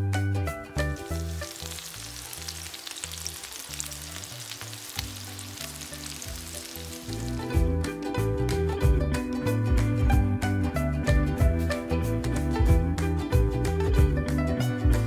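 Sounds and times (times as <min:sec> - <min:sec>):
omelette sizzling in hot oil: 0:00.9 - 0:07.6.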